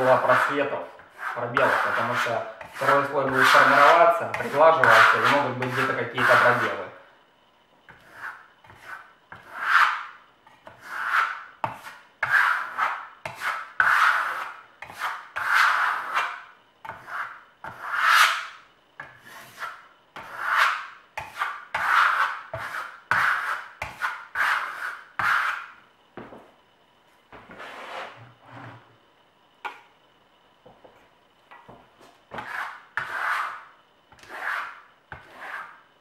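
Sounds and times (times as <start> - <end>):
trowel scraping coating: 0.0 - 6.8, 10.8 - 18.6, 19.2 - 25.8, 32.4 - 35.8.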